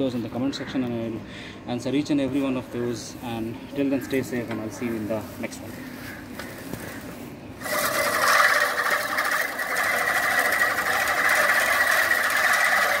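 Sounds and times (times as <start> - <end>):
reel mower blades whirring: 7.6 - 13.0.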